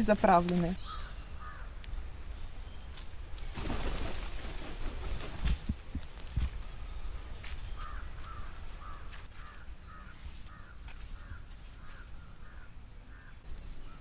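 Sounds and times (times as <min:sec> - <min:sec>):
bird harsh calls: 0:00.6 - 0:01.8, 0:07.7 - 0:14.0.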